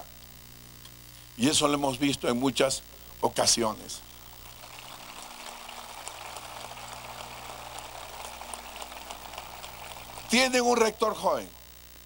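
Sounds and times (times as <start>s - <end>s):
low electrical hum: 0.0s - 12.0s
distant audience applause: 4.2s - 11.0s.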